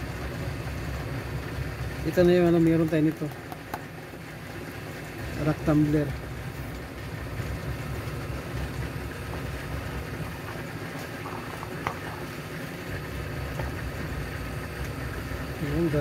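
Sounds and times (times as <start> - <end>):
low background rumble: 4.4 - 16.0.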